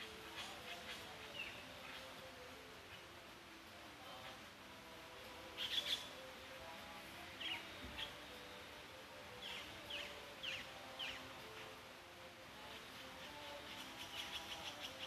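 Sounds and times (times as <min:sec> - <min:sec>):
bird chirping: 0:00.0 - 0:03.2, 0:05.4 - 0:11.8, 0:12.6 - 0:15.0.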